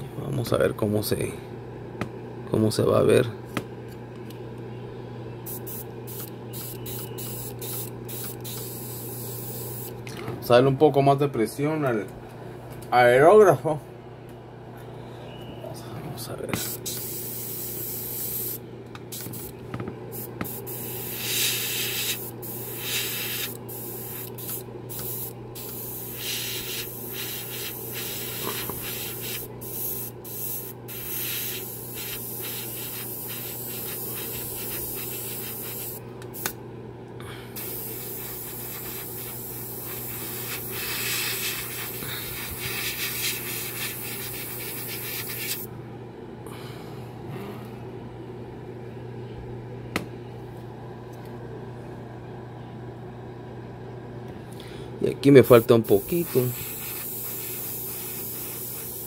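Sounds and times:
steady low hum: 0.0s - 59.0s
airbrush spraying hiss: 5.5s - 9.9s, 16.6s - 19.5s, 20.2s - 36.6s, 37.6s - 45.7s, 55.8s - 59.0s.

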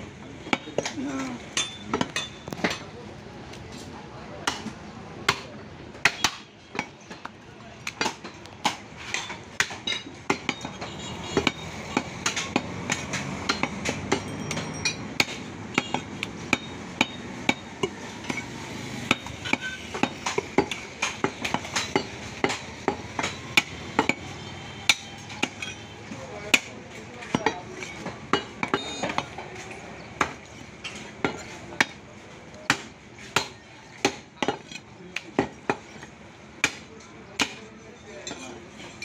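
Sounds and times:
cleaver chopping meat on wood block: 11.4s - 18.4s, 19.0s - 24.3s, 36.6s - 37.6s.

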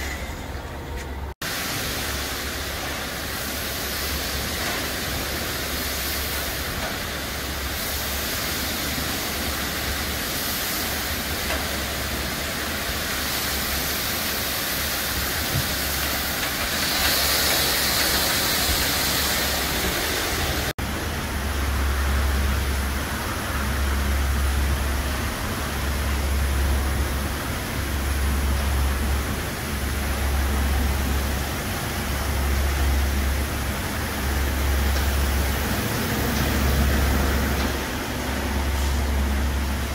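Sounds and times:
water spray hissing: 1.5s - 20.7s
low machine hum: 18.6s - 39.9s.

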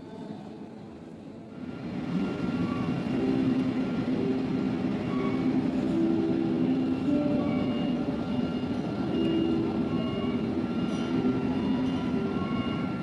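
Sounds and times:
engines rumbling: 1.6s - 13.0s.

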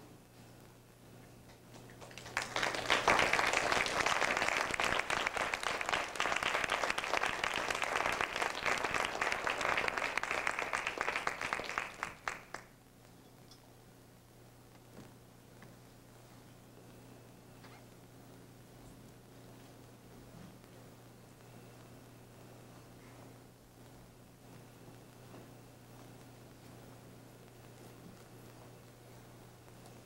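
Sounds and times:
audience applauding: 1.8s - 12.8s.

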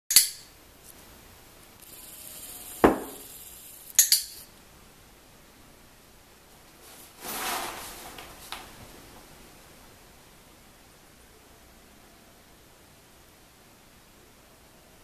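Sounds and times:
soft hiss: 0.1s - 15.0s
sharp clinking clicks: 2.8s - 4.5s
rustling: 6.6s - 9.3s.

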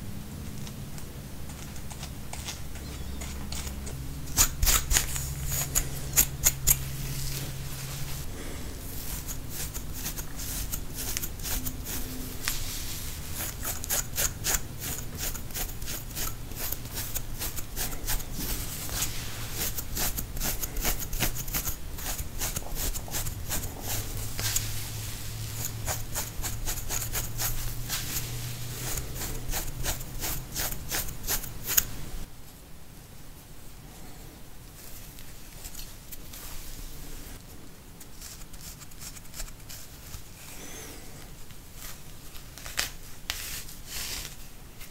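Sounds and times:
dry scratching of scalp: 4.3s - 32.3s, 38.1s - 40.9s, 41.8s - 44.9s.

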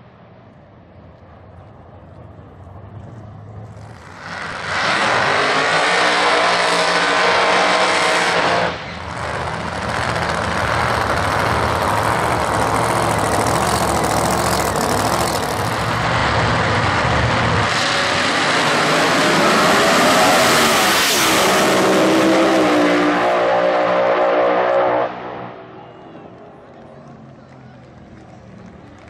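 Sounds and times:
engine revving high: 4.1s - 25.6s.

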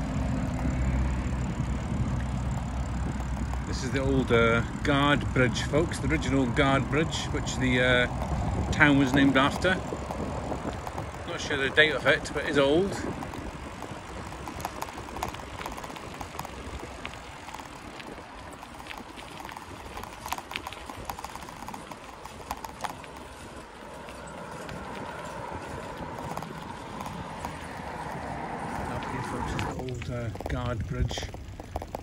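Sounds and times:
bicycle knocks and rattles: 0.0s - 32.0s
bicycle tyres on gravel: 0.0s - 32.0s.

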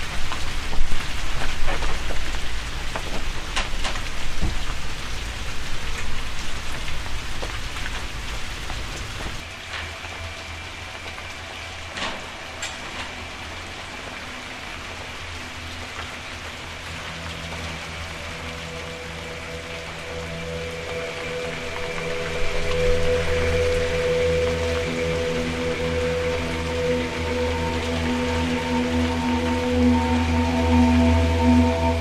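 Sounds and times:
ambient music drone: 0.0s - 32.0s
steady rain hiss: 0.0s - 32.0s
low hum: 16.9s - 32.0s.

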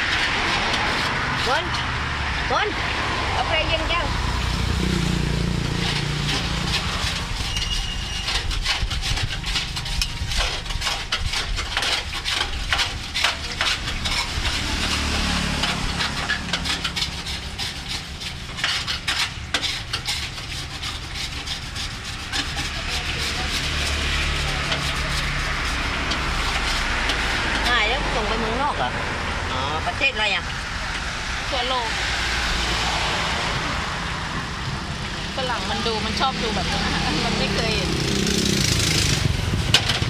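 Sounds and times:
oil crackling and sizzling: 0.0s - 35.8s.

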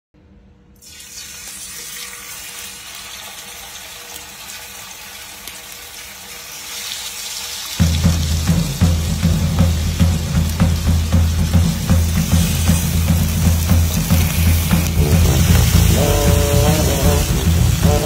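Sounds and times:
running water hiss: 0.8s - 18.0s
music with heavy bass beat: 7.8s - 18.0s.

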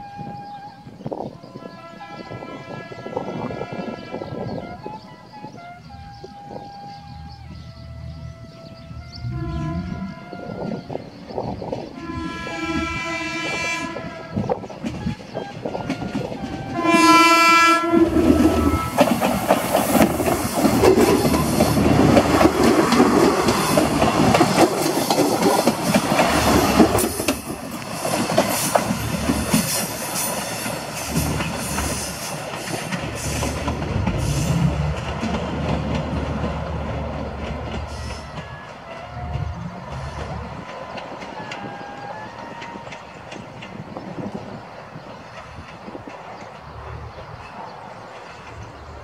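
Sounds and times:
diesel train engine running: 11.2s - 49.0s
train wheels clattering: 14.0s - 49.0s.

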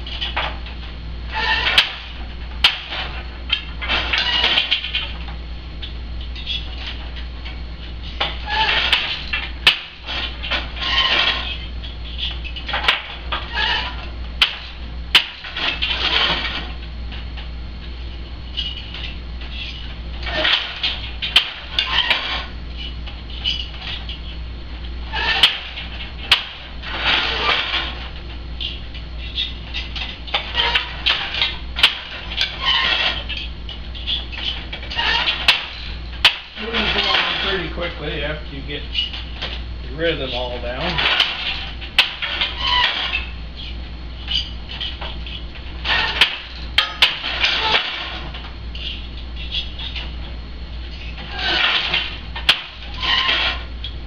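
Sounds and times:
wooden loom parts clacking: 1.4s - 5.3s, 8.2s - 16.7s, 18.6s - 24.2s, 25.2s - 37.8s, 40.3s - 43.3s, 44.2s - 50.1s, 51.0s - 54.0s.

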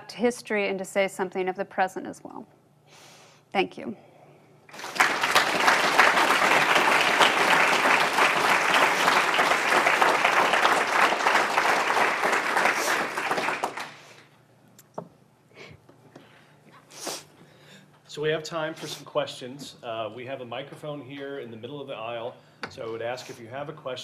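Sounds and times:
audience clapping: 4.7s - 14.3s.

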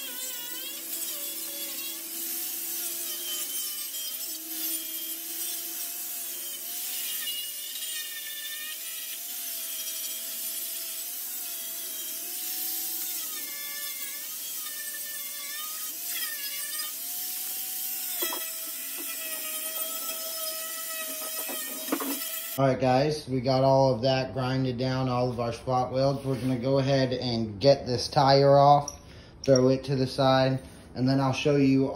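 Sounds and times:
power tool whining on sheet metal: 0.0s - 22.6s.

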